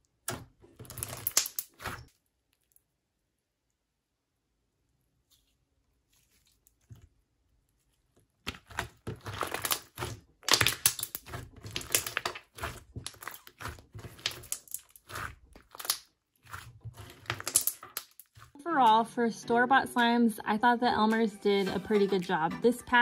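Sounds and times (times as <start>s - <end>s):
slime crackling and popping: 0.9s - 2.9s, 6.4s - 18.6s.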